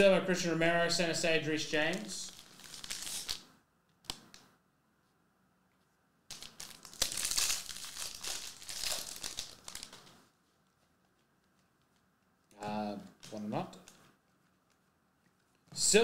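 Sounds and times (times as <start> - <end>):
foil wrapper crinkling and tearing: 1.9 - 3.4, 6.3 - 10.2.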